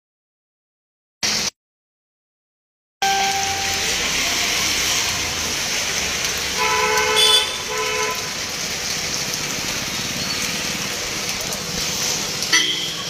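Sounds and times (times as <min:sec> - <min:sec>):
rain on a wet street: 0:01.2 - 0:01.5, 0:03.0 - 0:13.0
vehicle horn honking: 0:03.0 - 0:04.2, 0:06.6 - 0:08.3, 0:12.5 - 0:13.0.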